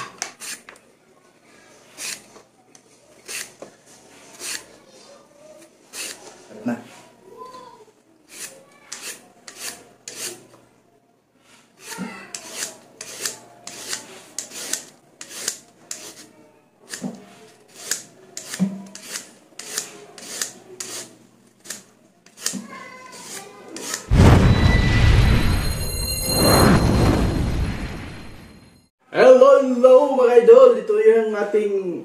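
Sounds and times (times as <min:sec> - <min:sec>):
vegetable peeler rasping on carrot: 0:03.2 - 0:03.5, 0:05.9 - 0:06.2, 0:08.3 - 0:10.4, 0:11.8 - 0:16.3, 0:17.7 - 0:24.1.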